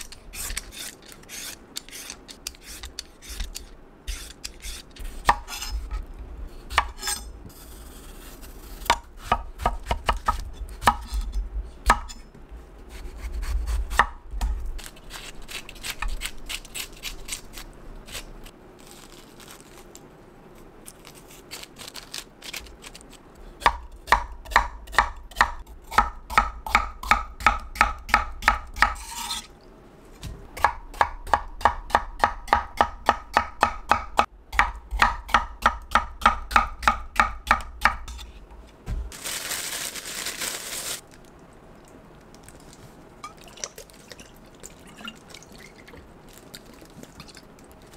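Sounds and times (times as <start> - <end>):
knife chopping on wooden board: 30.6 - 38.2.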